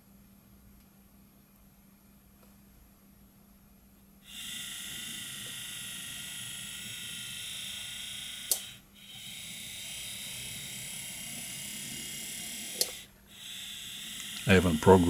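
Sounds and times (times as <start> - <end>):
small electric motor whining: 4.2 - 15.0
sharp click: 8.5 - 8.7.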